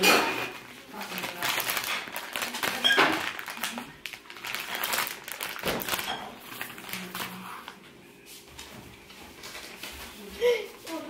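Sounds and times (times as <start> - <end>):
rustling: 0.8 - 7.8.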